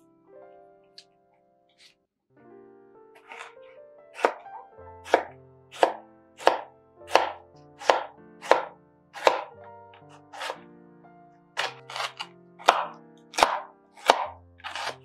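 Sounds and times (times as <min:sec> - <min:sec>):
soft background music: 0:00.0 - 0:15.0
knife chopping on wooden board: 0:03.2 - 0:03.6, 0:04.2 - 0:10.6, 0:11.6 - 0:15.0.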